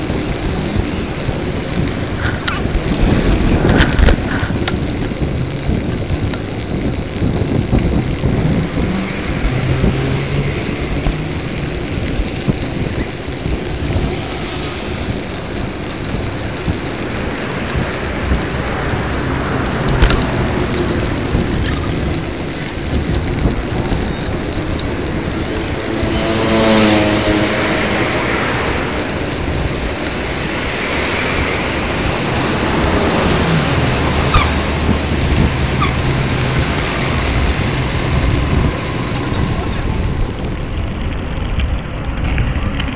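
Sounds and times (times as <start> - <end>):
road rumble: 0.0 - 42.9
traffic passing: 0.0 - 42.9
wind buffeting microphone: 0.0 - 42.9
vehicle engine climbing in pitch: 7.1 - 15.9, 23.4 - 29.3.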